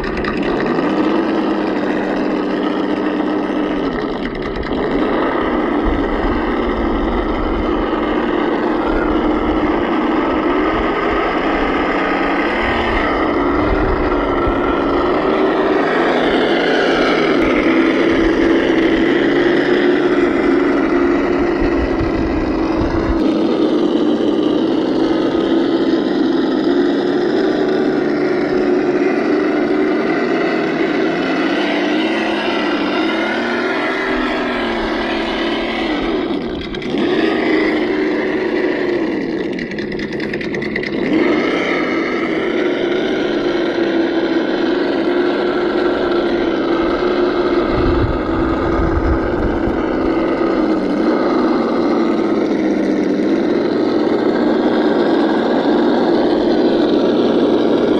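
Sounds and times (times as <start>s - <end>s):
simulated engine sound: 0.0s - 57.9s
low rumble: 3.1s - 26.6s, 32.4s - 41.0s, 45.1s - 52.5s.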